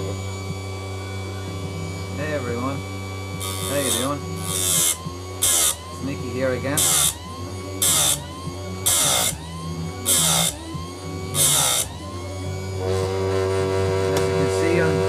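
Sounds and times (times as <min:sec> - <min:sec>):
grinder motor running: 0:00.0 - 0:15.0
grinding wheel on chain teeth: 0:03.4 - 0:07.2, 0:07.8 - 0:09.4, 0:10.0 - 0:10.6, 0:11.3 - 0:12.0.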